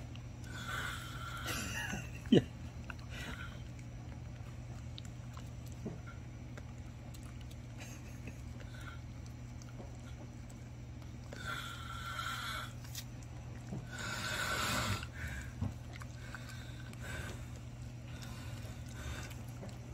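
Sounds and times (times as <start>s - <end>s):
dog licking and chewing: 0.0s - 19.9s
steady low hum: 0.0s - 19.9s.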